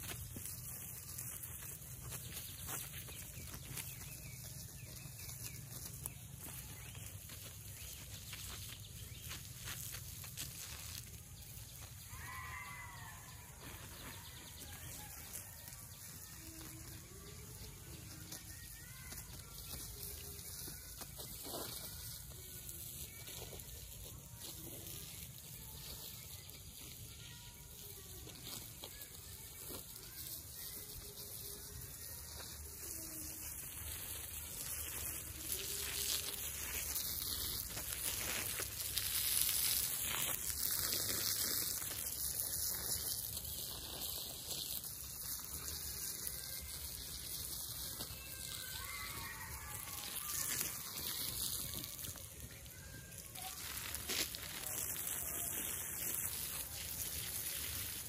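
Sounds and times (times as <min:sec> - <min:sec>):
hose spraying water on soil: 0:00.0 - 0:58.0.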